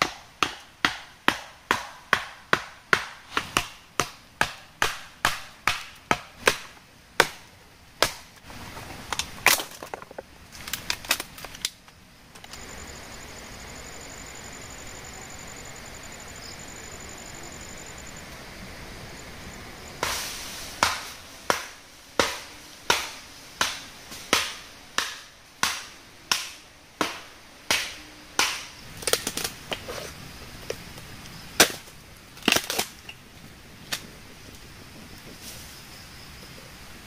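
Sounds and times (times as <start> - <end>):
blade chopping wood: 0.0 - 7.4, 8.0 - 8.3, 20.8 - 29.8, 31.6 - 31.9.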